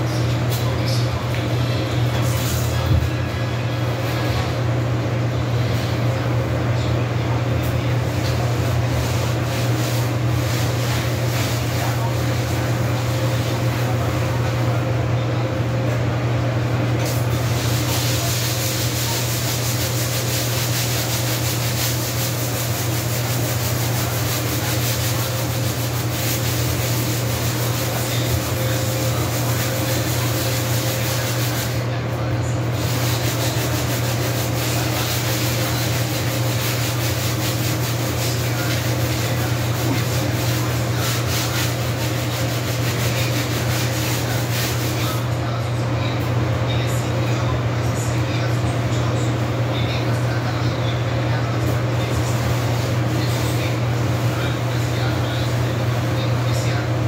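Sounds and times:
scrubbing a vinyl floor: 7.6 - 14.8, 17.0 - 45.3, 49.9 - 56.8.

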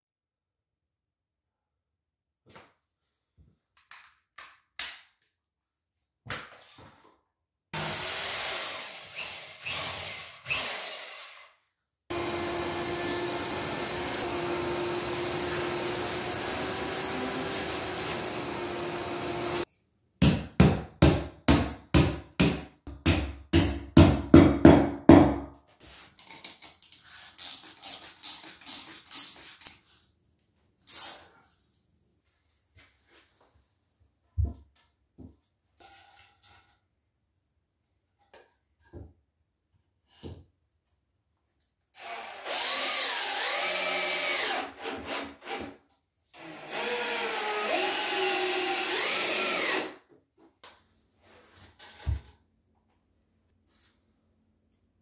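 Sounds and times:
electric sander on concrete: 12.1 - 19.6
shop vacuum running: 12.1 - 19.6.

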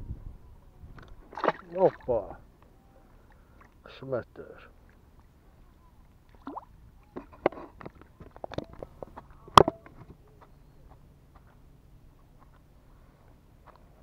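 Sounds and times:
faint low hum: 0.0 - 14.0
fishing tackle clicks and knocks: 7.1 - 10.1.

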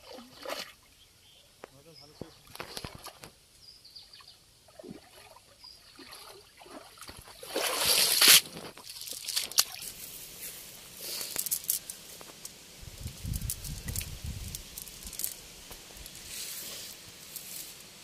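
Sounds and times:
water sloshing and splashing: 0.0 - 0.9, 2.4 - 3.3, 4.7 - 9.9
net squelching on mud: 4.8 - 12.5.

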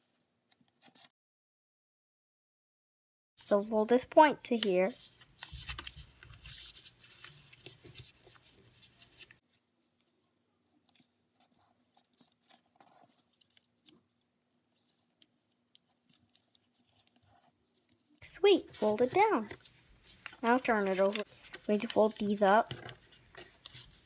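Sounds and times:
paper rustling and crackling: 4.5 - 24.0.

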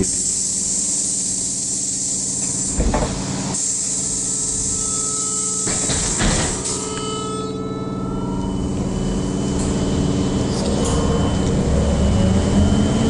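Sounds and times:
high hiss: 0.0 - 2.8, 3.5 - 7.3
electrical equipment hum: 0.0 - 13.0
electric motor whine: 4.5 - 13.0.

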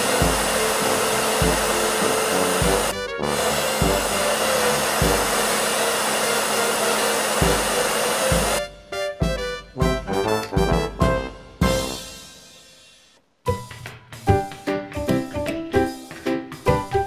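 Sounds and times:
hair dryer blowing: 0.0 - 8.7
background music with low note: 0.0 - 17.0.

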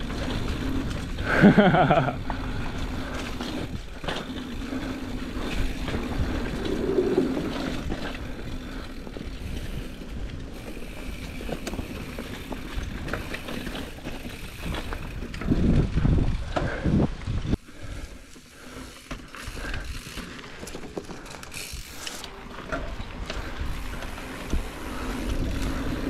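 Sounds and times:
wind buffeting microphone: 0.0 - 17.6, 22.9 - 26.0
bike chain rattling and clicking: 0.0 - 26.0
bike tyres rumbling on dirt: 0.0 - 26.0.

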